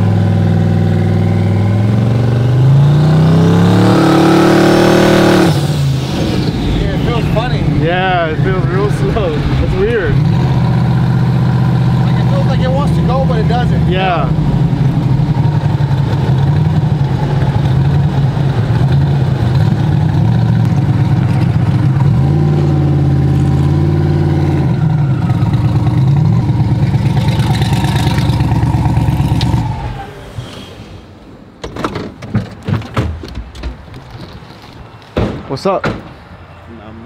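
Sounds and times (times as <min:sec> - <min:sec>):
truck engine running: 0:05.6 - 0:29.6
sharp clicks and knocks: 0:31.6 - 0:36.2.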